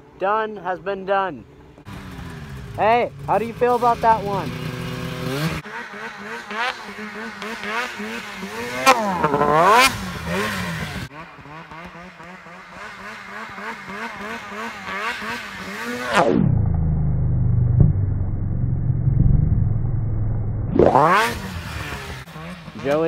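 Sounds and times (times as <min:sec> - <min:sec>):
snowmobile engine revving: 0:01.8 - 0:17.7, 0:20.8 - 0:23.0
deep muffled rumble: 0:16.5 - 0:21.0.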